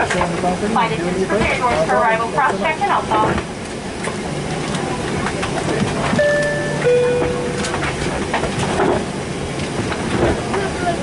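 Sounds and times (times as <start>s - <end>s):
airplane cabin rumble: 0.0s - 11.0s
two-tone cabin chime: 6.2s - 7.7s.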